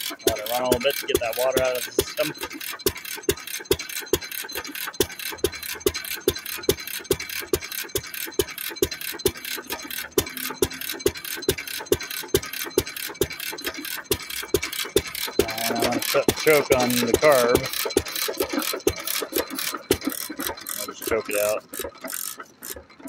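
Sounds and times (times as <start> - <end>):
single-cylinder engine running: 0.0 - 23.0.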